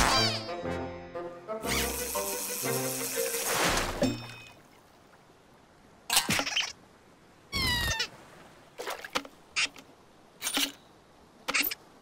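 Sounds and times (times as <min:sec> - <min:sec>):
cartoon sound effects: 0:00.0 - 0:00.7, 0:01.6 - 0:02.3
squeak-like call: 0:01.6 - 0:02.2, 0:07.5 - 0:08.1.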